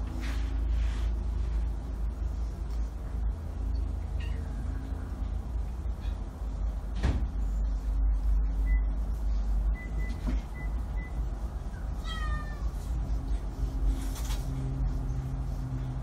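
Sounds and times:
cat mewing: 12.0s - 12.8s.

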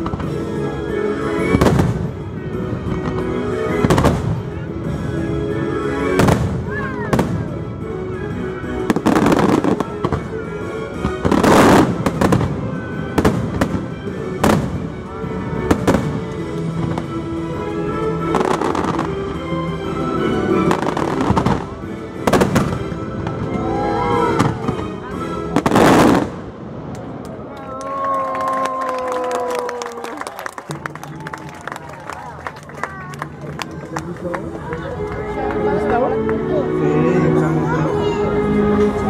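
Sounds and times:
music over loudspeakers: 0.0s - 26.4s
fireworks bursting: 20.6s - 23.6s, 25.5s - 27.2s.

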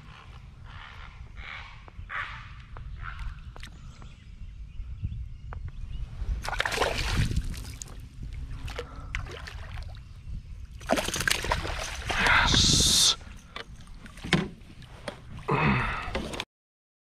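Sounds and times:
fish splashing in water: 6.4s - 7.8s, 10.8s - 12.3s.

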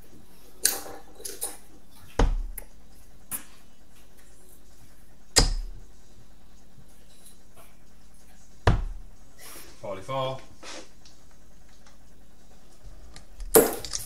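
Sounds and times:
darts thudding into dartboard: 2.2s - 2.6s, 5.4s - 5.8s, 8.6s - 9.0s.

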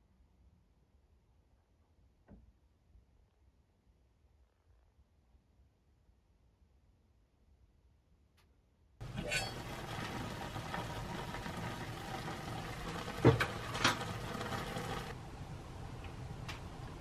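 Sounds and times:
water boiling in a pot: 9.0s - 17.0s.

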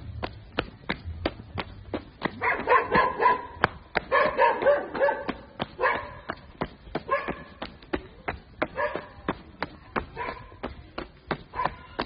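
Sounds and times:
footsteps on gravel: 0.0s - 12.0s
dog barking: 2.4s - 6.3s, 7.1s - 7.6s, 8.7s - 9.1s, 10.2s - 10.5s, 11.5s - 11.8s.

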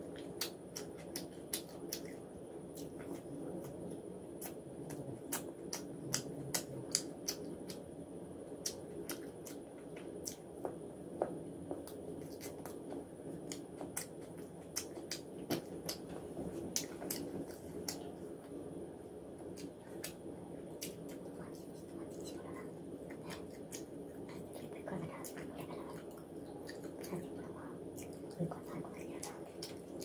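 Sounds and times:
chewing and mouth smacking: 0.1s - 7.8s, 8.6s - 10.4s, 11.7s - 18.2s, 20.8s - 30.0s
sharp mouth clicks: 4.4s - 7.8s, 16.7s - 18.1s.

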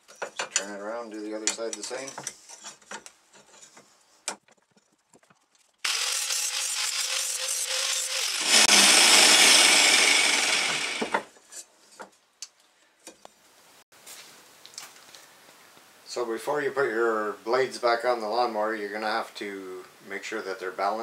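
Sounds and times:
angle grinder motor whine: 5.9s - 11.3s
grinder disc grinding metal: 5.9s - 11.3s.

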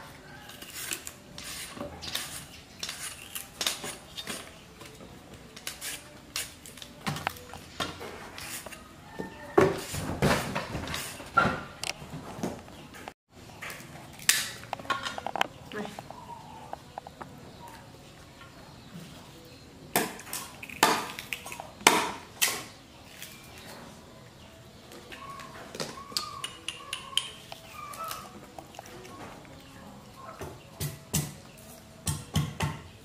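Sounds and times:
cleaver chopping sugarcane: 20.0s - 22.7s, 30.8s - 31.4s
faint squeaky calls: 24.5s - 30.5s.

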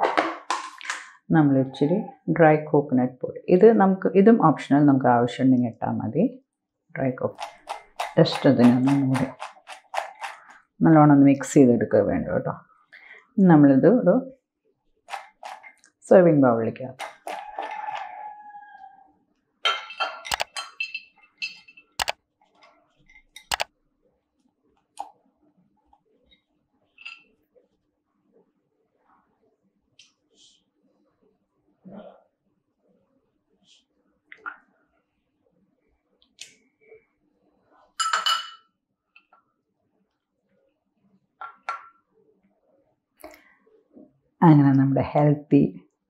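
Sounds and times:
spoon scraping cookware: 7.3s - 10.6s, 15.1s - 16.0s, 16.8s - 19.0s, 19.7s - 22.0s, 27.0s - 27.3s
spoon clinking against dish: 19.7s - 22.0s, 38.0s - 38.7s.

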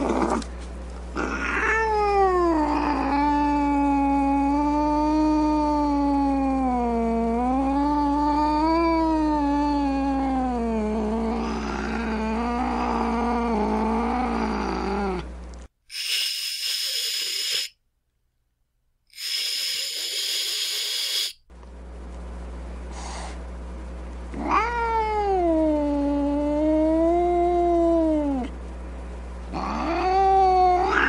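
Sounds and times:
cat moaning: 0.0s - 0.5s, 1.2s - 15.3s, 24.3s - 28.5s, 29.5s - 31.0s
cat yowling: 1.2s - 10.7s, 24.4s - 28.5s, 29.5s - 31.0s
cat hissing: 15.9s - 17.8s, 19.1s - 21.4s, 29.5s - 31.0s.

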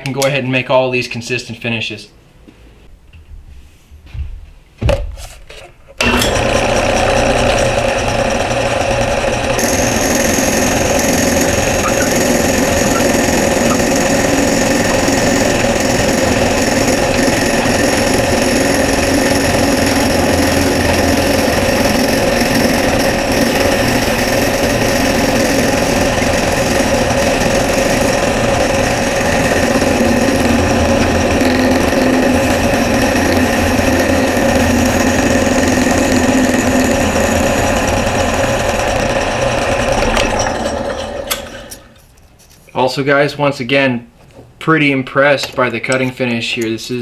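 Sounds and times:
drill press motor hum: 6.0s - 42.0s
cutter chewing wood: 6.9s - 38.1s.

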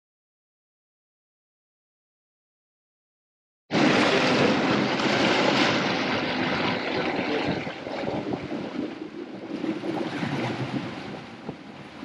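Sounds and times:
water rushing in boat wake: 3.7s - 12.0s
wind on microphone: 3.7s - 12.0s.

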